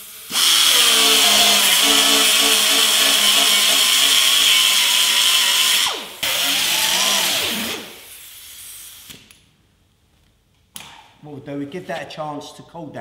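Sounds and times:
air grinder whining: 0.0 - 8.1.

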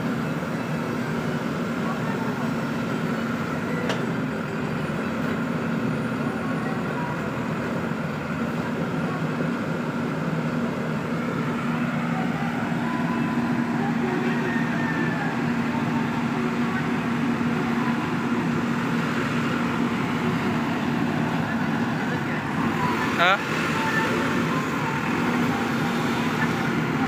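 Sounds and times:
diesel engine running under load: 0.0 - 27.0.

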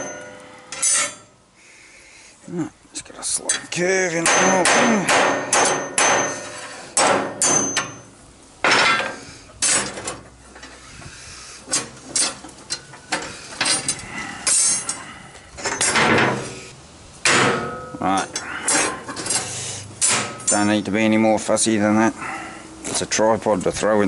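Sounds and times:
hammer striking steel rod: 4.2 - 8.0.

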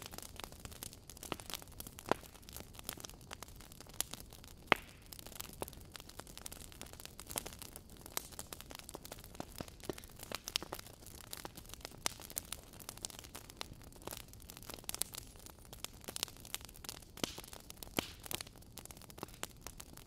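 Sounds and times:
faint fire hiss: 0.0 - 20.0
logs crackling in a fireplace: 0.0 - 20.0.

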